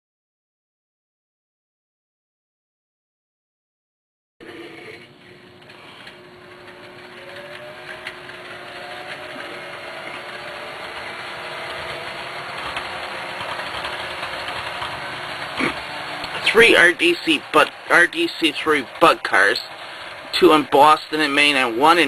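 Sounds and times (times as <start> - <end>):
model train motor humming: 4.4 - 22.0
wheels clicking on track: 4.4 - 22.0.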